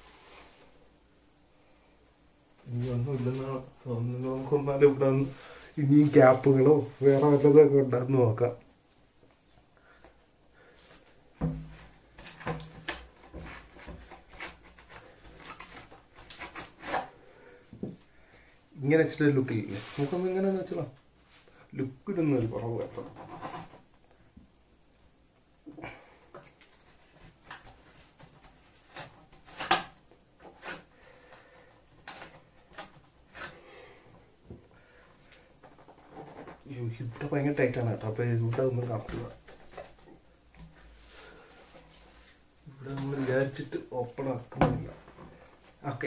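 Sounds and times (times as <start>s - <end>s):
dull knock: 11.4s - 11.7s.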